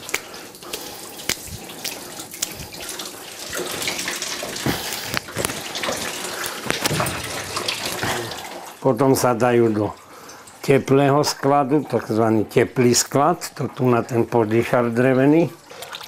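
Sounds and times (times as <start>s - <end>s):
wet splats into a tub: 0.0s - 8.4s
whey splashing out of cloth: 0.0s - 8.8s.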